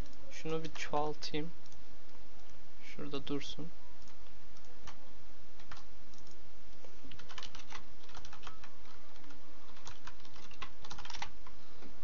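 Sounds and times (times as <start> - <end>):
computer keyboard typing: 5.6 - 6.4, 7.1 - 11.6.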